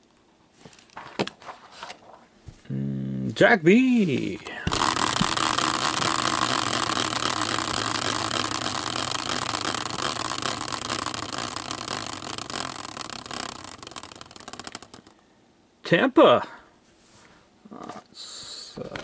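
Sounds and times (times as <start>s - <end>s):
prize wheel ticking: 4.7s - 15.2s.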